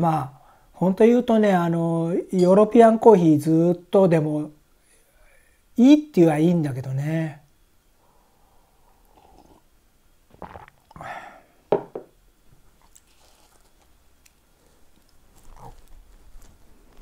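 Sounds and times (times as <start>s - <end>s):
sipping coffee: 10.3s - 11.1s
mug knocking on wooden table: 11.7s - 12.1s
biting toast and chewing: 12.7s - 17.0s.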